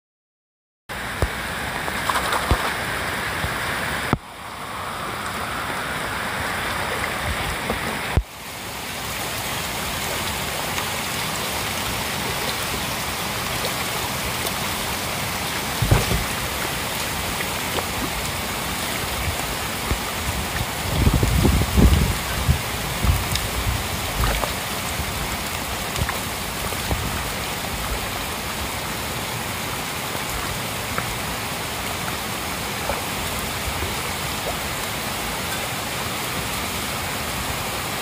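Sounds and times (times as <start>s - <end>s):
heavy rain on pond: 0.9s - 38.0s
fish splashing: 10.1s - 20.4s.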